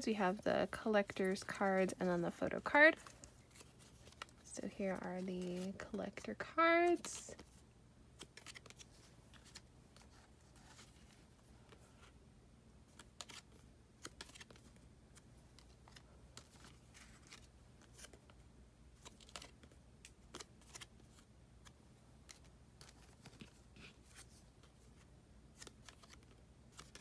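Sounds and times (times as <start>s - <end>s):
cards clicking and sliding: 8.2s - 12.2s, 12.9s - 18.4s, 19.0s - 27.0s.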